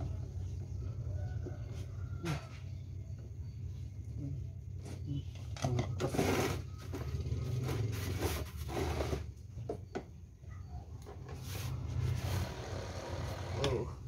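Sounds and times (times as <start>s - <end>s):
steady low hum: 0.0s - 14.0s
plastic parts rubbing and scraping: 4.8s - 9.5s, 11.1s - 13.8s.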